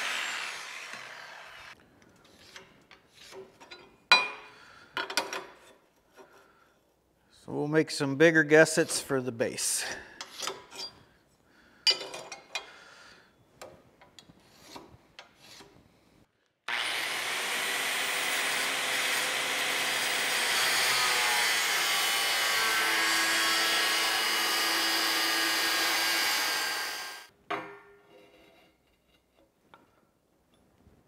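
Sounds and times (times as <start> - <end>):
angle grinder cutting steel: 0.0 - 1.8, 16.7 - 27.3.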